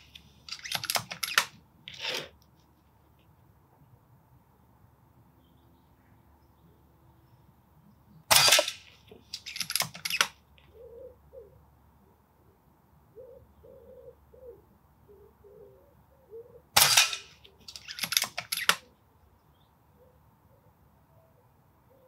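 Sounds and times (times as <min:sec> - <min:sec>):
air rifle shots: 0:08.3 - 0:10.4, 0:16.8 - 0:18.8
faint bird call: 0:13.1 - 0:16.7
rifle side lever clicks: 0:16.8 - 0:18.8.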